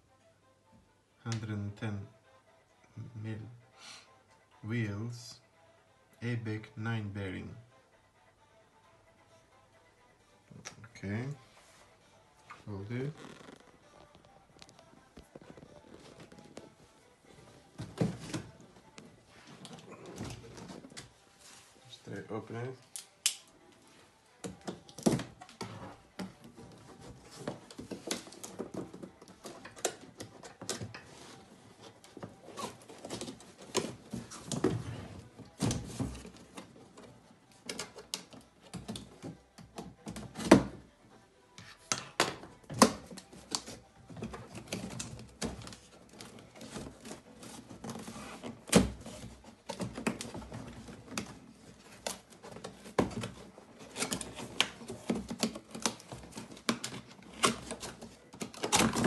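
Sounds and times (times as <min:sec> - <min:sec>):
cardboard rustling and scraping: 0:13.1 - 0:22.0, 0:25.2 - 0:37.1, 0:43.4 - 0:59.0.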